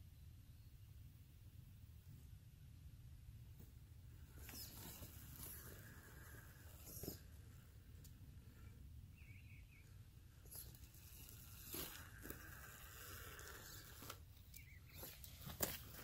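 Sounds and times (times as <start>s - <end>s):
faint electric motor whine: 3.6s - 16.0s.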